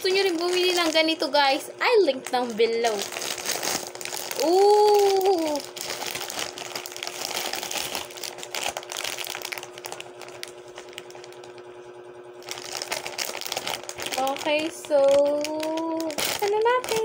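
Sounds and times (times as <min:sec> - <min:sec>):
plastic packets crinkling: 0:00.0 - 0:11.7, 0:12.4 - 0:17.0
faint steady hum: 0:00.0 - 0:17.0
person humming: 0:04.3 - 0:05.6.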